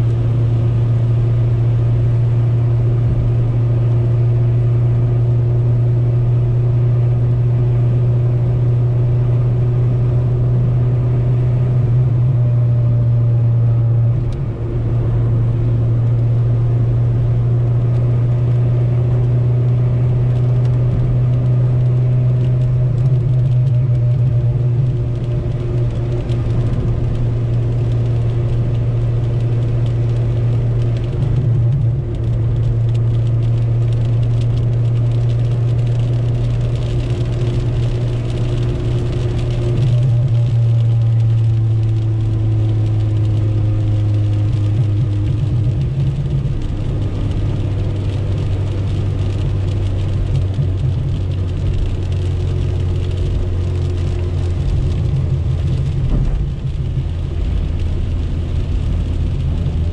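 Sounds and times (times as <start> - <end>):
car engine drone: 0.0 - 59.9
rain and spray hissing on car: 13.4 - 59.9.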